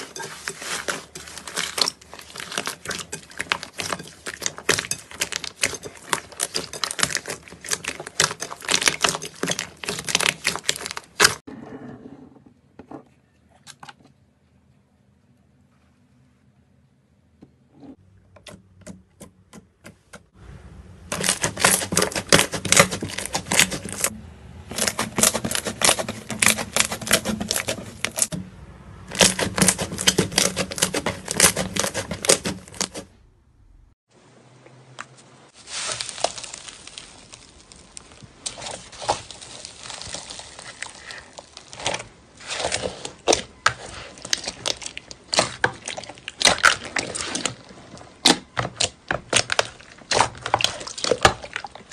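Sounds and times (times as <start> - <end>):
slime clicking and crackling: 0.1 - 11.4, 21.1 - 24.1, 24.7 - 28.3, 29.1 - 33.0.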